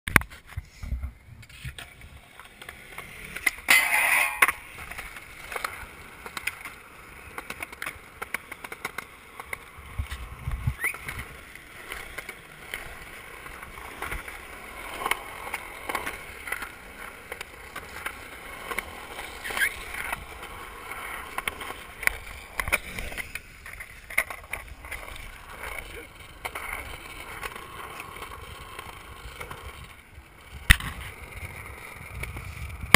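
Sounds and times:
skateboard wheels rolling on concrete: 0.1 - 32.9
skateboard grinding concrete edge: 0.2 - 32.9
skateboard clacks and knocks: 1.0 - 32.9.

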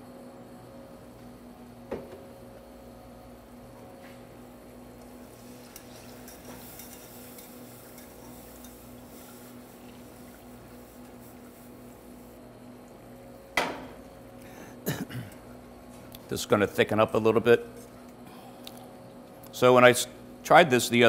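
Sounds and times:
steady low hum: 0.0 - 21.0
whisk stirring in saucepan: 5.2 - 12.3
whisk scraping metal pot: 5.5 - 10.0.

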